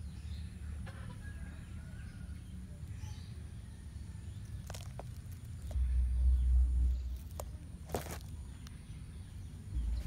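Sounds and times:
low rumble: 0:05.6 - 0:10.0.

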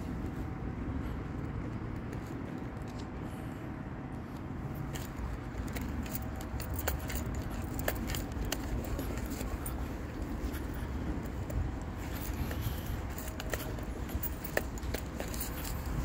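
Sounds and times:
low traffic rumble: 0:00.0 - 0:16.0
keys clicking and jingling: 0:04.8 - 0:16.0.

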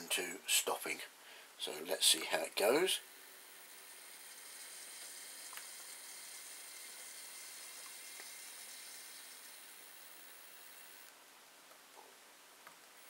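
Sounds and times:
faint hiss of model train motor: 0:01.6 - 0:11.1.

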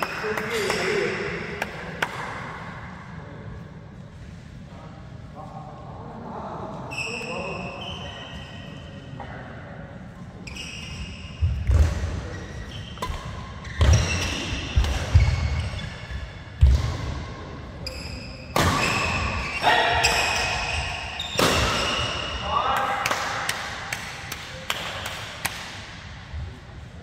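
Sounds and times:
shoes squeaking: 0:10.4 - 0:11.6, 0:12.2 - 0:16.4, 0:17.8 - 0:22.4.

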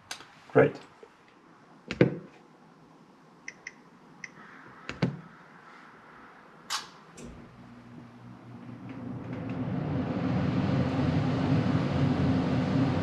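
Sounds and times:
furnace blower motor humming: 0:07.2 - 0:13.0.

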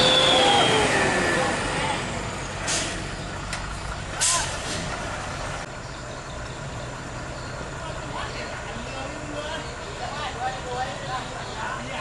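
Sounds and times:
diesel truck idling: 0:00.0 - 0:12.0
air brake hisses: 0:02.6 - 0:03.1.

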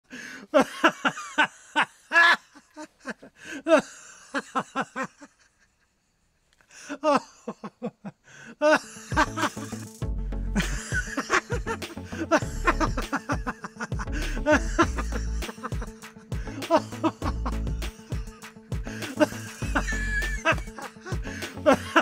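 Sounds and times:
human laughter in rapid bursts: 0:00.5 - 0:06.1, 0:07.0 - 0:10.0, 0:10.6 - 0:22.0
background music with low beat: 0:09.0 - 0:22.0.

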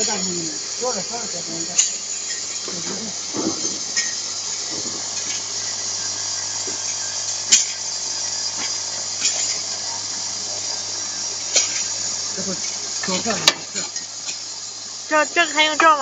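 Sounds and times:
vibratory feeder humming: 0:00.0 - 0:16.0.

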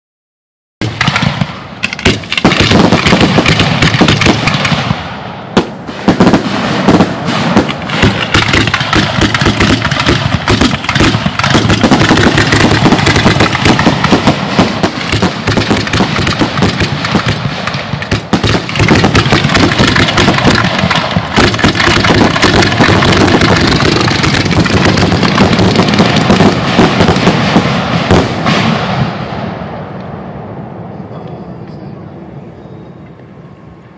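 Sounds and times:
fireworks booming and crackling: 0:00.8 - 0:30.8.

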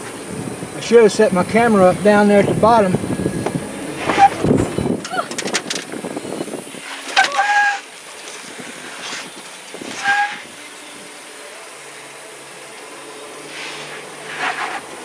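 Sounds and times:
low engine hum: 0:00.0 - 0:15.0
hiss of tyres: 0:06.7 - 0:10.6, 0:13.4 - 0:15.0.

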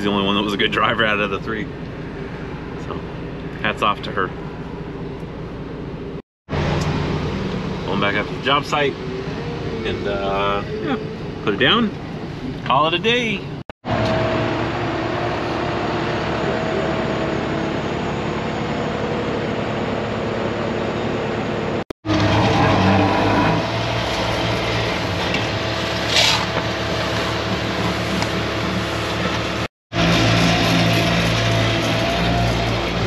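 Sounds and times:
diesel paver engine running: 0:13.9 - 0:33.0.

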